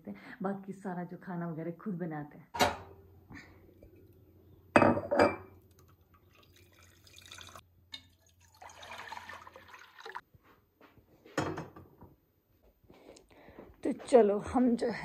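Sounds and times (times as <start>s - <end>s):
water pouring into glass: 5.7s - 10.2s.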